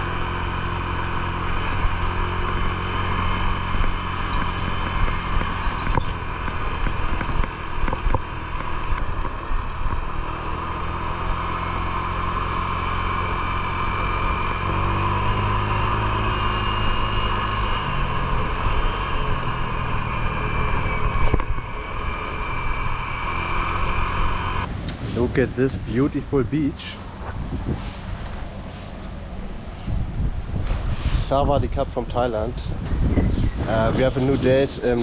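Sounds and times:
scooter engine running: 0:00.0 - 0:24.7
wind noise on microphone: 0:01.6 - 0:11.5, 0:14.0 - 0:23.5, 0:24.6 - 0:35.0.

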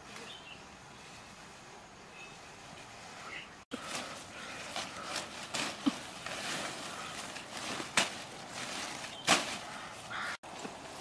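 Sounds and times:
plant stems rustling: 0:02.6 - 0:11.0
stems snapping: 0:04.7 - 0:08.3, 0:08.9 - 0:09.7.

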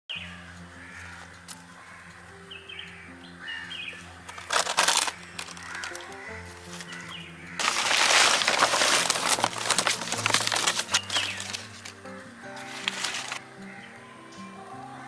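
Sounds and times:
birds chirping: 0:00.1 - 0:15.0
soft held background music: 0:00.1 - 0:15.0
rustle of corn husks and leaves: 0:04.0 - 0:13.8.

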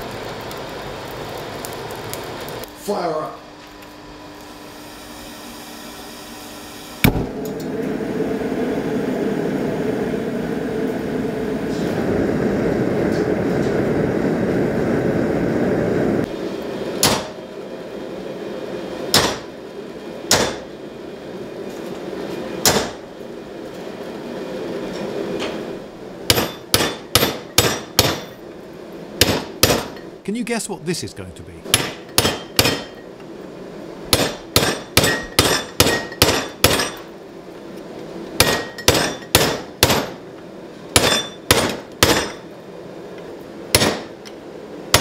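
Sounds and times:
forge burner rushing: 0:00.0 - 0:45.0
gas forge lighting pop: 0:07.0 - 0:07.6, 0:17.0 - 0:17.4, 0:19.1 - 0:19.5, 0:22.6 - 0:23.0
hammer blows on hot steel: 0:26.3 - 0:28.4, 0:29.2 - 0:33.0.

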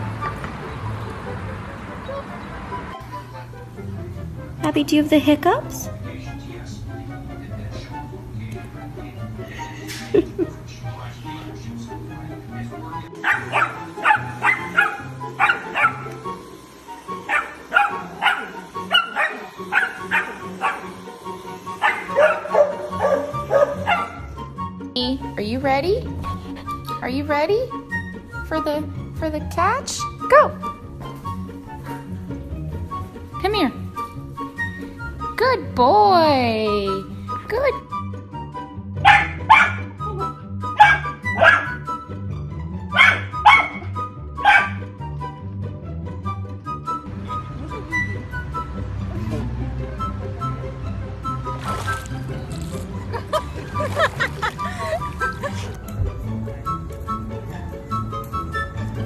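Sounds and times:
background music: 0:00.0 - 0:59.0
puppy yapping: 0:13.2 - 0:16.2, 0:17.3 - 0:21.0, 0:21.8 - 0:24.2, 0:39.0 - 0:40.0, 0:40.7 - 0:41.8, 0:42.9 - 0:44.8.

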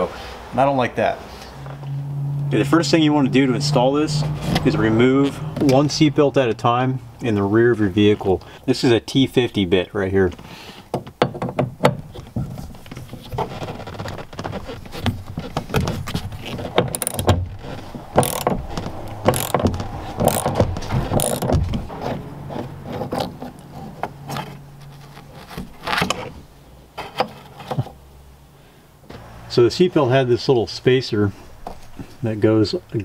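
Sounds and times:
ratchet wrench clicking: 0:16.9 - 0:17.3, 0:18.2 - 0:18.6, 0:19.2 - 0:20.6, 0:21.2 - 0:21.5.

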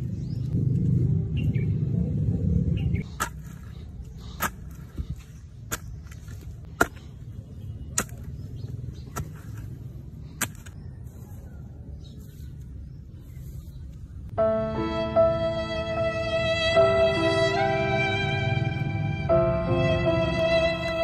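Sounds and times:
hoe chopping into soil: 0:03.1 - 0:07.2, 0:07.8 - 0:10.8.

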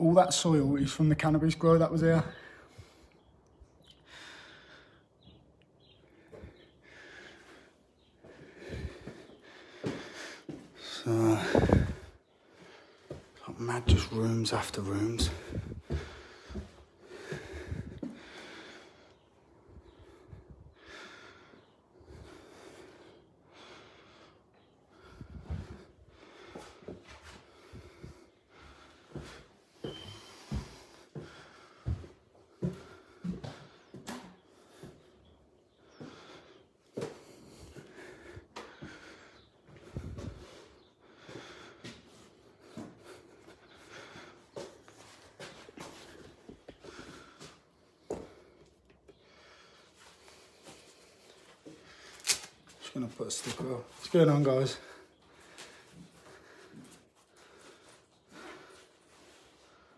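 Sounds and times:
faint breathing: 0:02.2 - 0:14.2, 0:14.8 - 0:59.9
soft footsteps on floor: 0:08.2 - 0:10.8, 0:15.2 - 0:18.2, 0:29.1 - 0:35.0.

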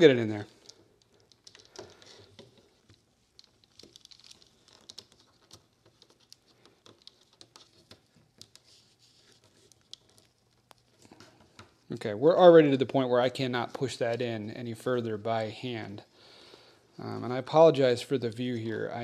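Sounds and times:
faint clicks and scrapes: 0:00.0 - 0:12.0.

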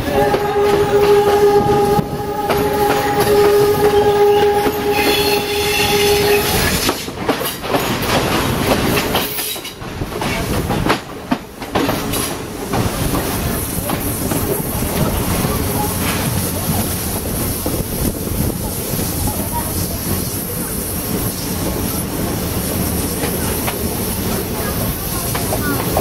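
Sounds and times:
train horn: 0:00.0 - 0:06.9
train wheels clattering on rails: 0:00.0 - 0:26.0.

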